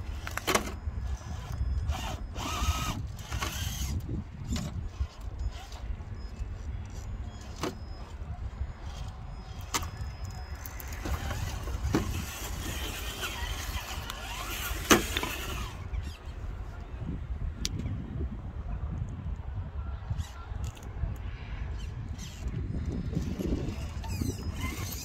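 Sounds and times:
electric motor whine: 0.1s - 16.2s.

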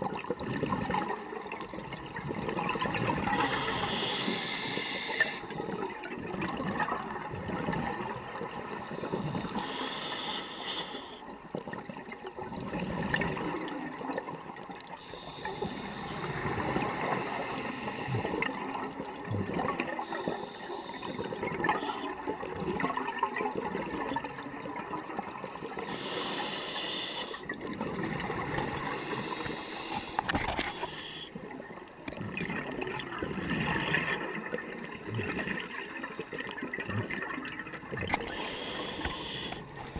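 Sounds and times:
regulator breathing hiss: 3.4s - 5.5s, 8.9s - 11.2s, 15.0s - 18.2s, 20.0s - 22.2s, 25.7s - 27.5s, 28.8s - 31.3s, 38.3s - 39.7s
gurgling exhaled bubbles: 15.0s - 31.2s.

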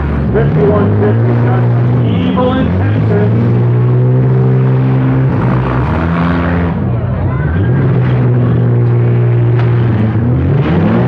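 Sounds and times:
car engines revving: 0.0s - 11.0s.

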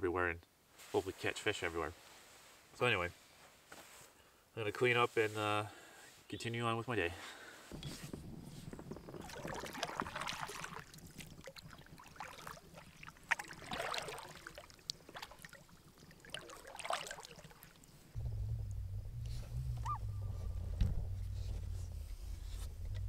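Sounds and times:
paddle splashing through water: 8.8s - 18.2s.

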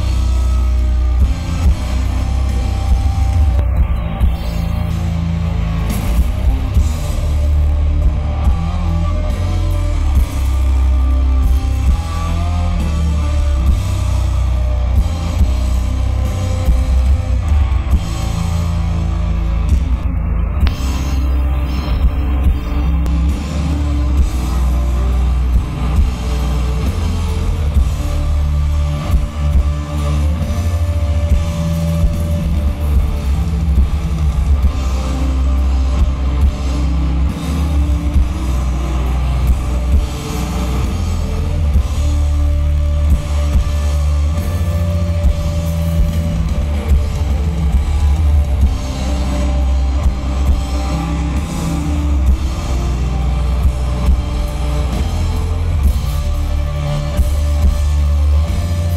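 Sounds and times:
live metal band playing: 0.0s - 58.9s.

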